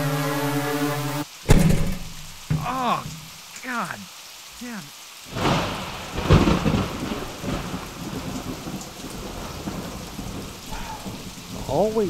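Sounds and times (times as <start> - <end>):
heavy rain: 0.0 - 12.0
thunderclap rumbling: 5.3 - 12.0.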